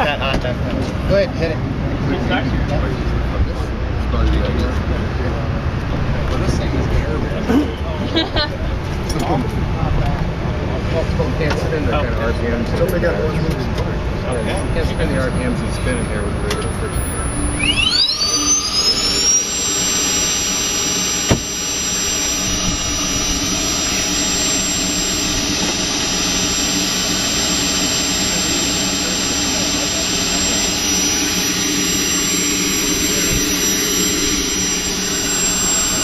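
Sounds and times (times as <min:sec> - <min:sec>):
turbine engine whine and exhaust: 0:00.0 - 0:36.0.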